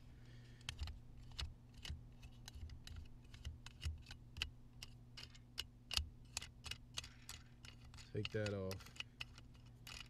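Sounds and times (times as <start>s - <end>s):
wing nut clicking on threaded hook: 2.8s - 10.0s.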